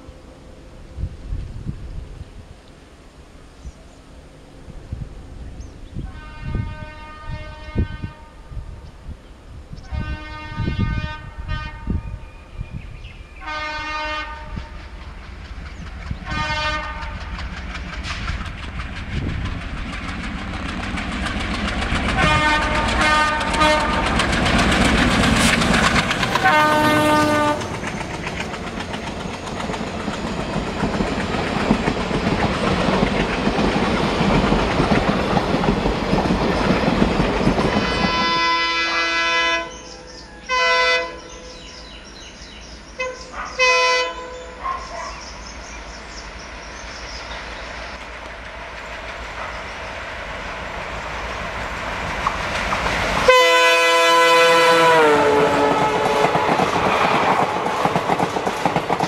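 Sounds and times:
diesel locomotive engine: 0:00.0 - 0:59.0
locomotive horn blasts: 0:06.0 - 0:08.5, 0:09.8 - 0:12.2, 0:13.4 - 0:14.8, 0:16.2 - 0:17.3, 0:22.2 - 0:24.2, 0:26.3 - 0:27.8, 0:37.8 - 0:41.4, 0:43.0 - 0:44.6, 0:53.3 - 0:56.7
train wheels clattering over rail joints: 0:14.8 - 0:38.4, 0:46.8 - 0:53.8, 0:55.6 - 0:59.0.

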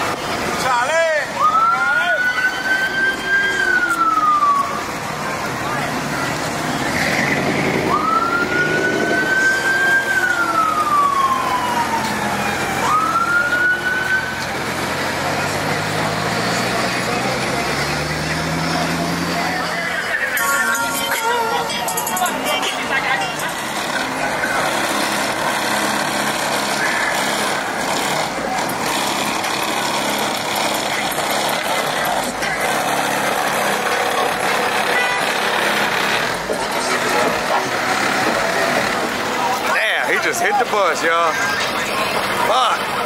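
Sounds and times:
car engines and tyres: 0:00.0 - 0:43.0
road noise: 0:00.0 - 0:43.0
siren wailing: 0:01.2 - 0:05.1, 0:07.1 - 0:14.9.

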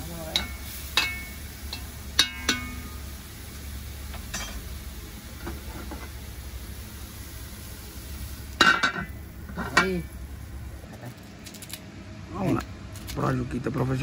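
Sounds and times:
stew simmering and hissing: 0:00.0 - 0:11.2
metal ladle knocking on pot: 0:00.4 - 0:02.9.

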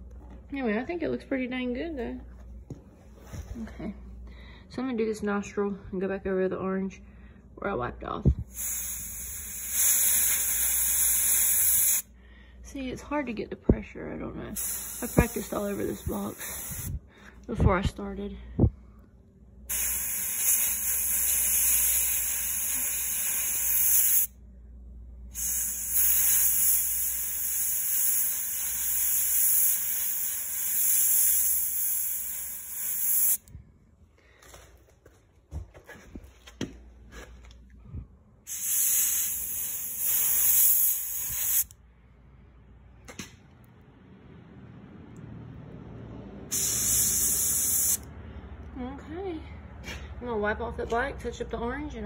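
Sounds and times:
airbrush air hiss: 0:08.4 - 0:12.1, 0:14.6 - 0:17.0, 0:19.7 - 0:24.3, 0:25.3 - 0:33.5, 0:38.5 - 0:41.7, 0:46.5 - 0:48.1.

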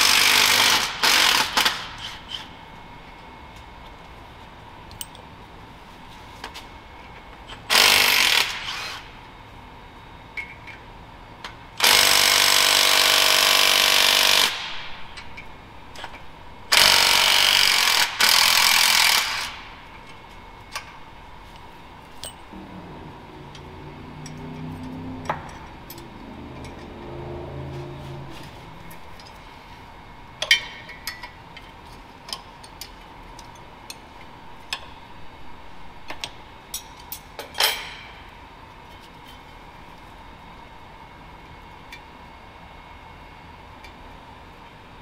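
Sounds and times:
impact wrench running: 0:00.0 - 0:02.0, 0:07.7 - 0:09.1, 0:11.8 - 0:14.9, 0:16.7 - 0:19.7.

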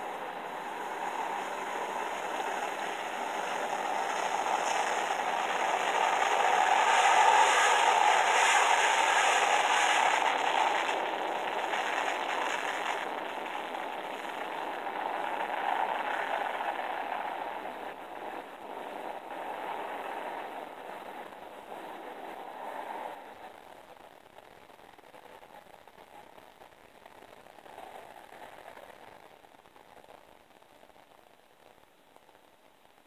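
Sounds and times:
jet engines roaring: 0:00.0 - 0:20.7.

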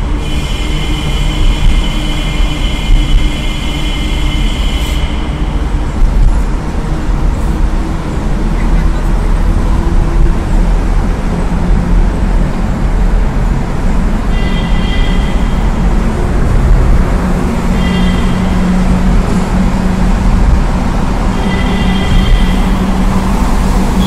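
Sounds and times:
tunnel traffic rumble: 0:00.0 - 0:24.0.

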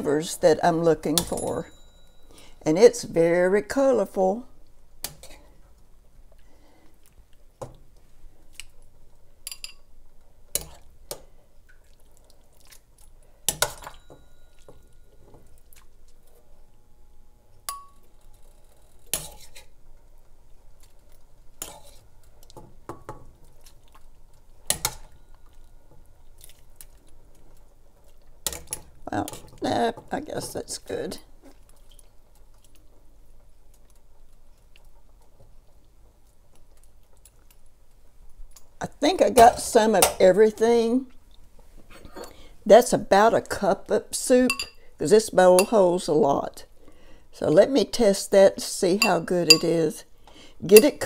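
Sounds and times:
ladle clinking against pot: 0:49.0 - 0:49.8.

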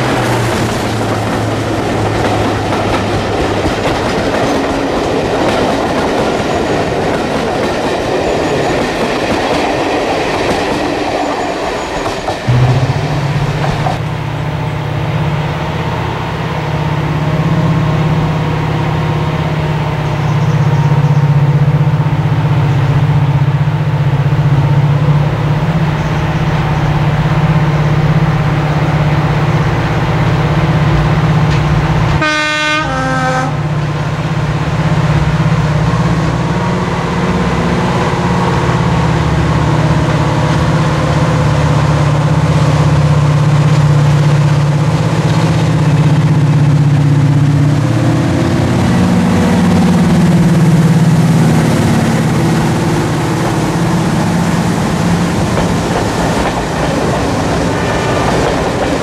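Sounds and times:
diesel locomotive engine: 0:00.0 - 0:59.0
locomotive horn blast: 0:12.5 - 0:14.5, 0:32.0 - 0:33.8.

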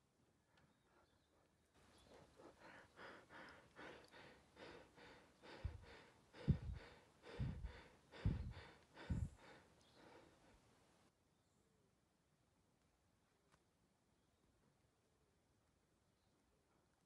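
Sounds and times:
rhythmic breathy puffs: 0:00.8 - 0:10.8
heavy puffs thumping microphone: 0:05.5 - 0:09.5.

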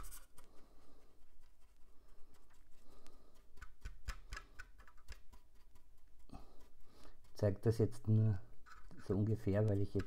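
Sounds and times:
paintbrush dabbing and scraping: 0:00.0 - 0:10.0
light taps and clicks: 0:08.7 - 0:10.0.

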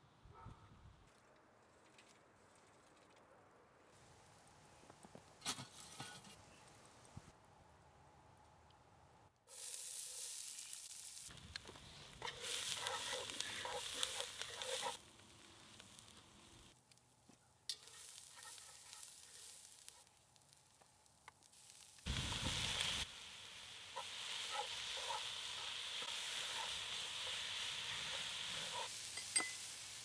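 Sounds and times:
onions sizzling in a pot: 0:09.5 - 0:16.8, 0:17.7 - 0:30.0.

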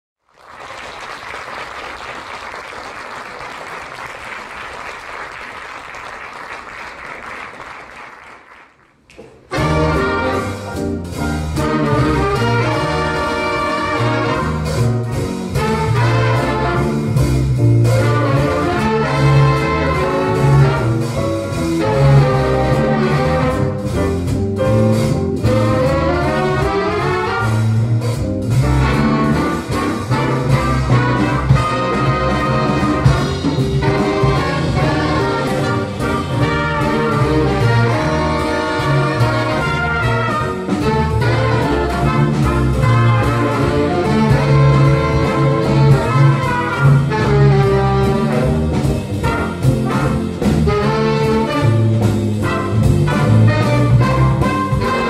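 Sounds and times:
audience applause: 0:00.2 - 0:09.4
big band playing jazz: 0:00.4 - 0:55.0.

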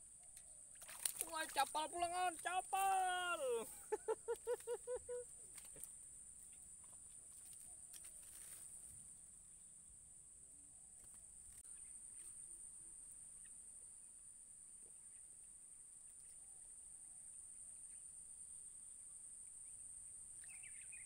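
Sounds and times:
insect chirps: 0:00.0 - 0:21.0.

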